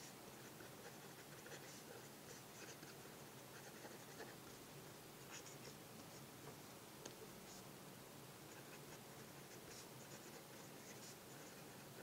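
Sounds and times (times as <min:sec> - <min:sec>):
pen nib scratching paper: 0:00.0 - 0:04.4, 0:05.3 - 0:06.2, 0:08.5 - 0:12.0.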